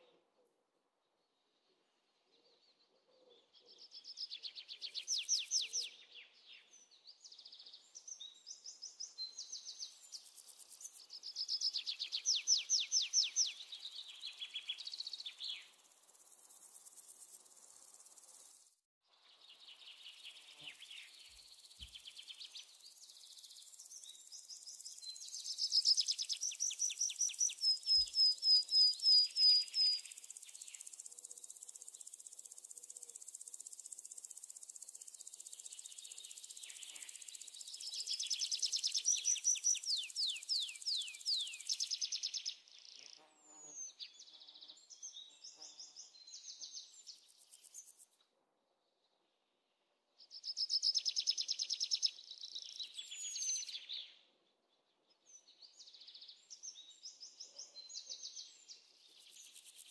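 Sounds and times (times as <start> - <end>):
birds singing trilled notes: 19.5 - 32.7, 34.0 - 47.9.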